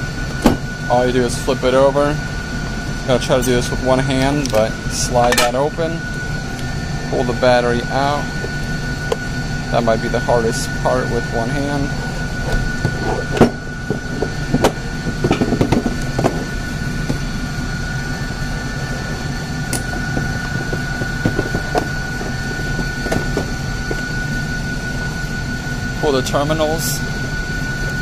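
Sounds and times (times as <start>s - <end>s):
steady hum with high tone: 0.0s - 28.0s.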